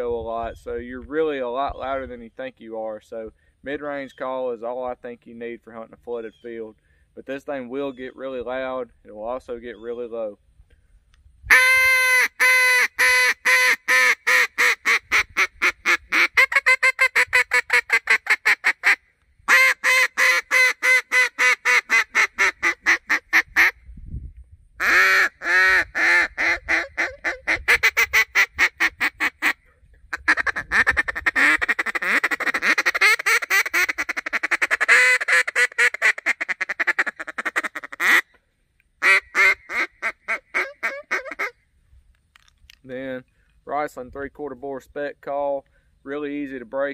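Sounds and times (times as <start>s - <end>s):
duck call quacks: 11.5s - 23.8s, 24.8s - 38.4s, 39.0s - 41.6s.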